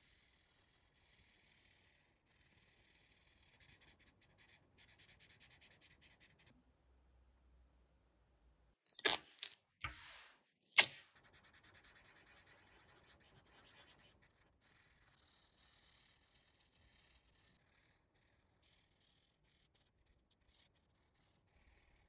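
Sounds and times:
marker scribbling on paper: 0:00.5 - 0:06.5, 0:09.8 - 0:19.2.

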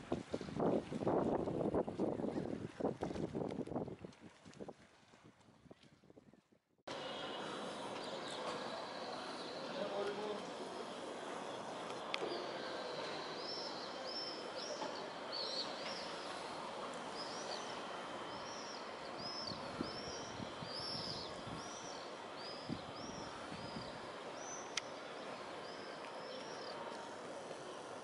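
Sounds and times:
city background noise: 0:06.9 - 0:28.0.

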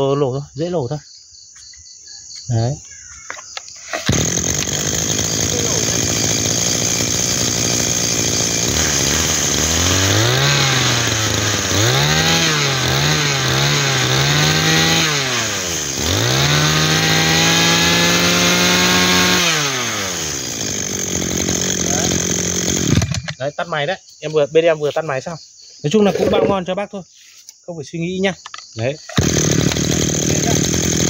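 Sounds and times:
brush cutter engine revving: 0:03.8 - 0:23.5, 0:26.0 - 0:26.6, 0:29.0 - 0:31.0.

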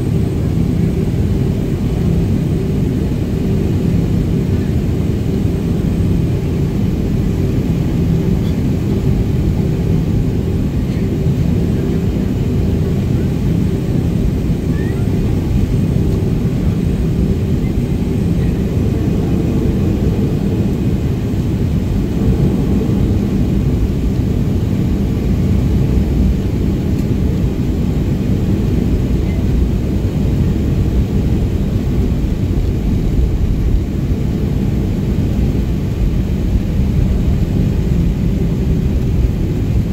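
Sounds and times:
jet engines rumbling in cabin: 0:00.0 - 0:39.9.

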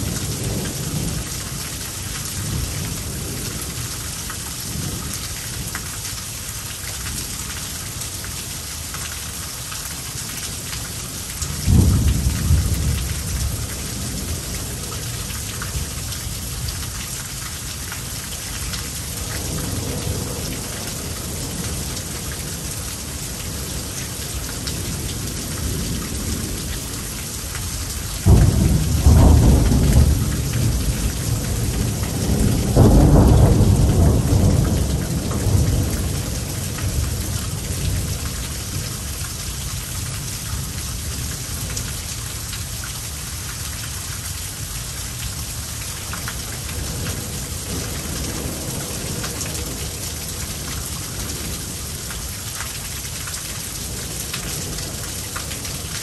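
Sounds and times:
heavy rain falling: 0:00.0 - 0:56.0
thunder rumbling: 0:28.2 - 0:38.8.

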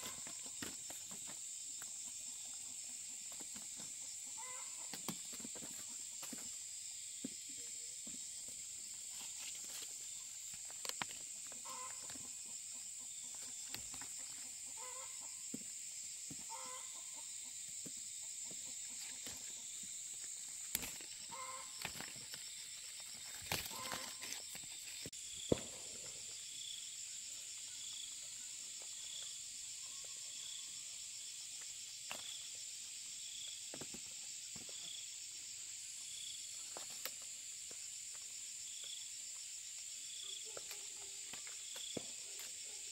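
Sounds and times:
chickens clucking: 0:00.0 - 0:06.6, 0:11.3 - 0:15.6, 0:16.4 - 0:22.1, 0:23.5 - 0:24.4.

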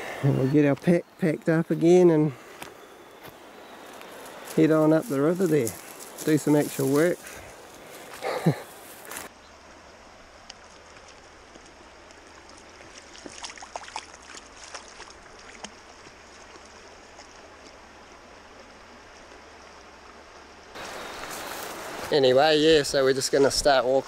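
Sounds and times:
shallow river running: 0:00.0 - 0:24.0
dog splashing through water: 0:12.5 - 0:16.6.

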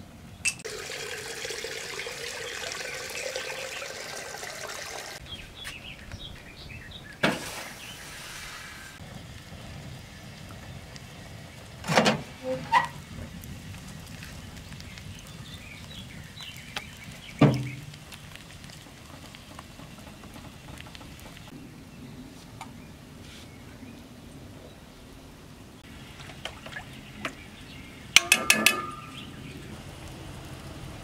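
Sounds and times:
wood fire crackling: 0:00.6 - 0:21.6, 0:28.8 - 0:31.0
loud metal clank: 0:28.2 - 0:29.3.

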